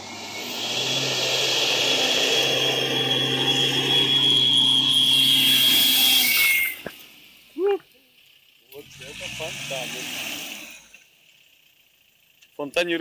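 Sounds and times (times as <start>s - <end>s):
engine revving hard: 0.0s - 7.2s, 8.7s - 11.1s
high turbo whistle: 0.0s - 7.4s.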